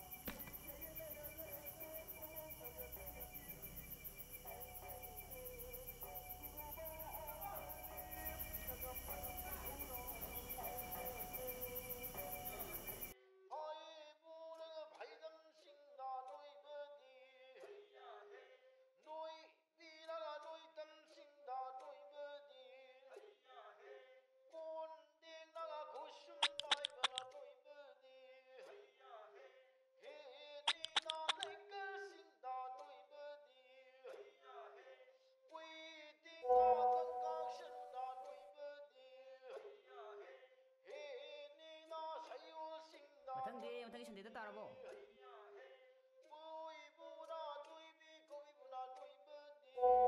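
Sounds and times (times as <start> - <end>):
person singing slow melody: 0.0 - 13.7, 36.4 - 38.4
slow song with singing voice: 0.0 - 18.6, 28.4 - 50.0.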